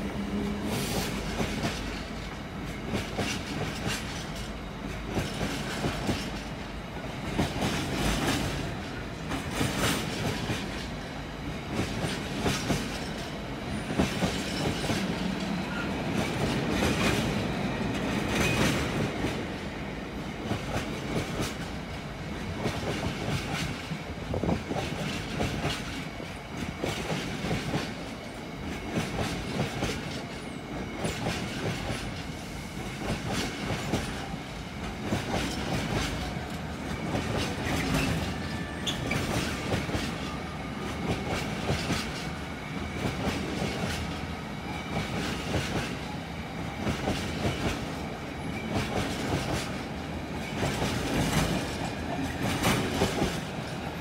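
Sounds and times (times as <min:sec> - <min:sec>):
steady train rumble: 0:00.0 - 0:54.0
train wheels clattering over rail joints: 0:00.8 - 0:19.6, 0:20.4 - 0:44.3, 0:46.8 - 0:54.0
faint wheel squeal: 0:37.8 - 0:39.6.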